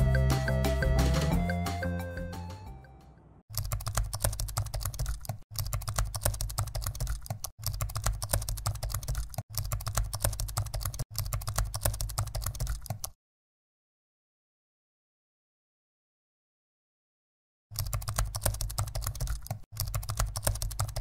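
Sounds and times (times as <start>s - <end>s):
rapid keystroke clicks: 3.5s - 13.2s, 17.7s - 21.0s.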